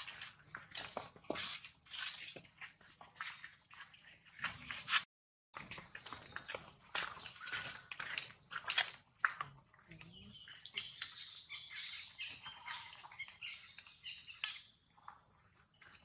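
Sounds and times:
rustling dry leaves and twigs: 5.6s - 9.4s
monkeys chirping and squeaking: 9.9s - 14.7s.

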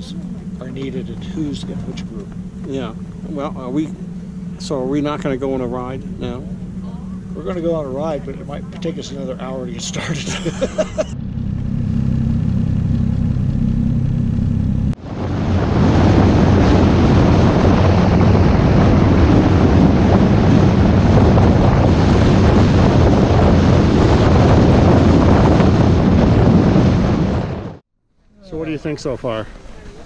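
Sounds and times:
snowmobile engine running: 0.0s - 27.8s
wind rushing over microphone: 14.9s - 27.8s.

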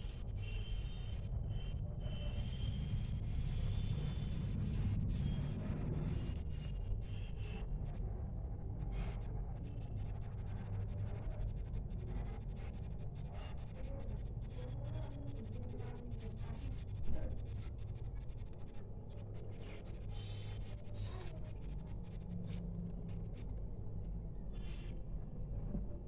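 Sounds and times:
low background hum: 0.0s - 26.0s.

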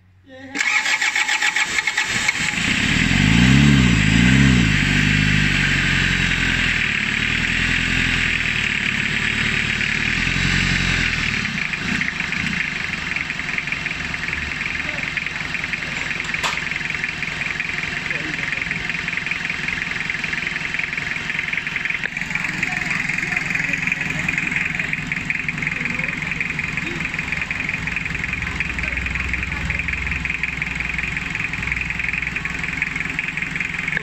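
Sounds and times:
diesel engine revving and idling: 0.0s - 34.0s.

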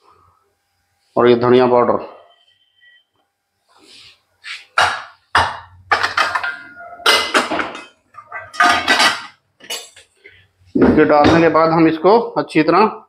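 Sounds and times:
metal bowls clinking on counter: 4.8s - 10.1s.

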